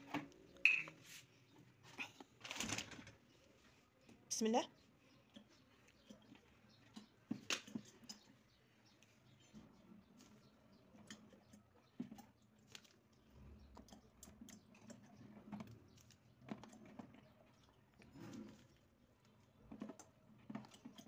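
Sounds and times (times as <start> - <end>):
olives dropping into water bottle: 0.6 - 1.0.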